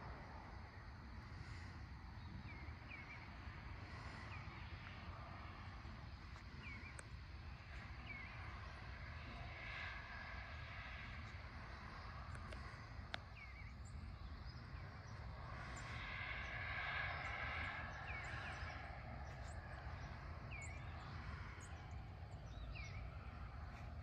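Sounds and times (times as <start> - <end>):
low rumble and hiss: 0.0 - 24.0.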